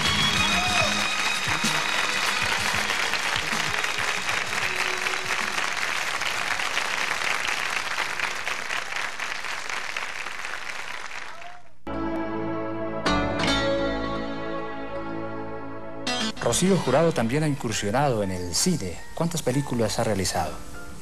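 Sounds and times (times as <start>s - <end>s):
band playing: 0.0s - 5.9s, 11.9s - 18.1s
audience applauding: 0.0s - 11.8s
plucked string music: 11.9s - 17.1s.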